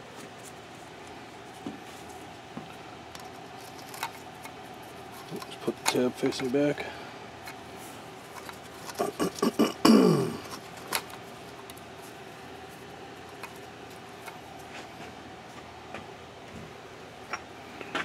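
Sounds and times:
faint steady hum: 0.0 - 18.0
metal parts clicking: 3.2 - 6.6, 8.3 - 9.5.

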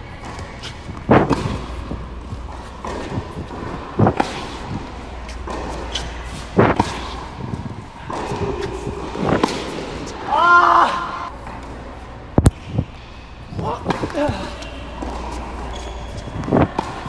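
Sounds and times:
sharp tennis ball impacts: 0.3 - 10.2.

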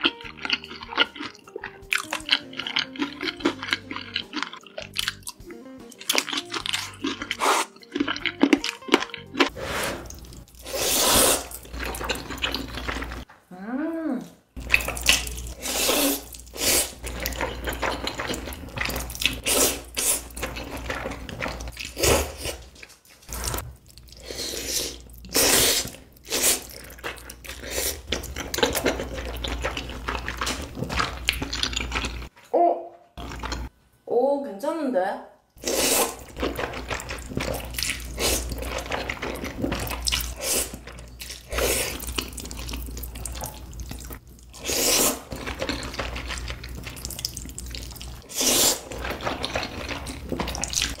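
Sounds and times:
person chewing: 0.0 - 13.3, 14.6 - 32.3, 33.2 - 33.7, 35.6 - 51.0
wet noodle slurping: 6.7 - 8.6, 9.4 - 13.2, 14.7 - 22.7, 23.3 - 32.3, 35.6 - 51.0.

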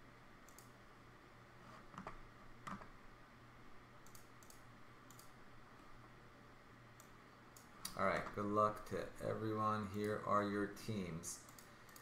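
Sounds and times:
mouse and keyboard clicking: 4.0 - 5.3.

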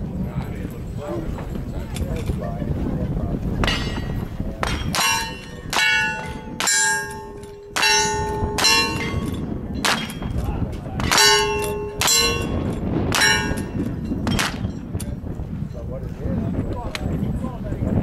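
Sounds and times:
steel plate clanging: 3.6 - 14.9.

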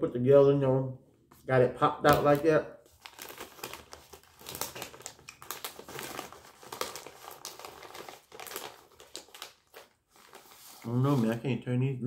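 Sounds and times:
plastic snack bag crinkling: 2.0 - 11.4.

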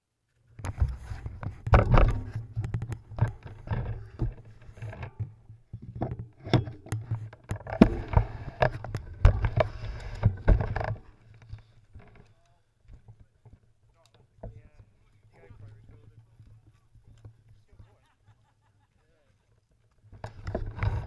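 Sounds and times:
bike handling knocks and rattles: 0.7 - 12.3.

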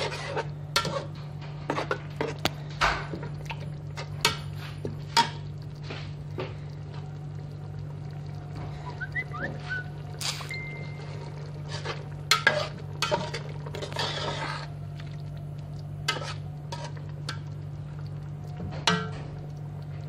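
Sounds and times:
metal spoon scraping a pot: 0.0 - 2.4, 11.6 - 14.7, 16.1 - 17.4
steady low hum: 0.0 - 20.0.

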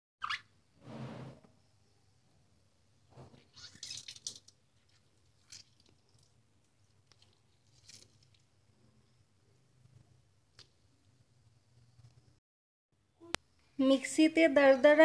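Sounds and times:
water squelching and splattering: 3.5 - 8.5.

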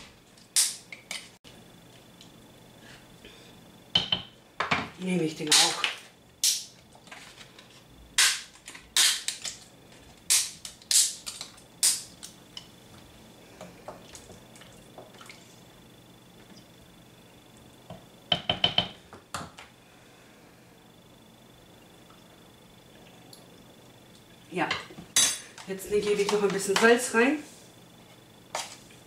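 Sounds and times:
dry pasta sheets snapping: 8.2 - 9.6, 10.2 - 12.4.

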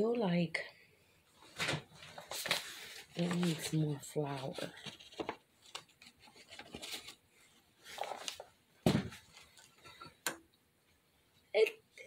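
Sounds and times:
paper bag rustling: 1.4 - 7.2, 7.8 - 9.7.

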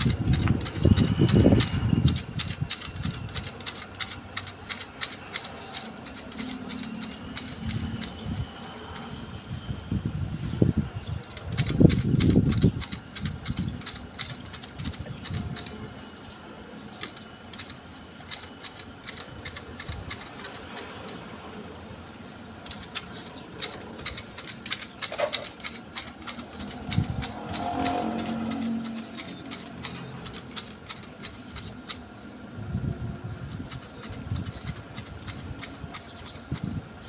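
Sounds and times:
hedge shears blade clicks: 22.7 - 32.1.

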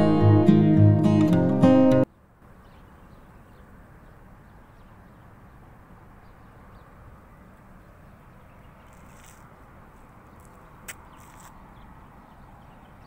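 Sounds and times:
brief rustle: 8.8 - 9.6, 10.4 - 11.6.

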